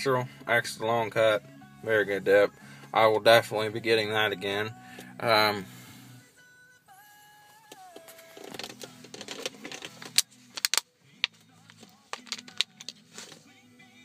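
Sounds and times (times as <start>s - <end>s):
faint music: 0.0s - 14.0s
clicks and rattles of handling: 8.1s - 10.8s.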